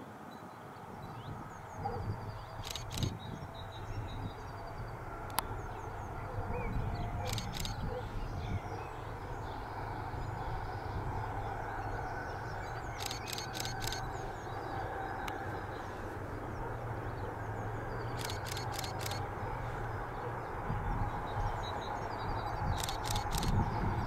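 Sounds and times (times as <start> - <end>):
sharp high clicks: 2.6 - 3.2, 7.2 - 7.8, 12.9 - 14.2, 18.1 - 19.3, 22.7 - 23.7
faint bird chirps: 6.6 - 8.6, 12.6 - 14.5, 18.0 - 19.2.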